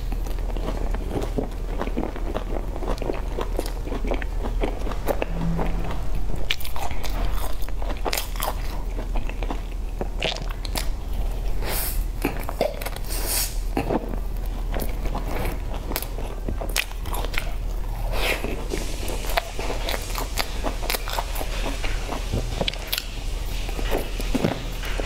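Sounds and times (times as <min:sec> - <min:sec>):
chewing: 0:00.0 - 0:05.2, 0:06.5 - 0:25.0
steady low hum: 0:01.1 - 0:08.2.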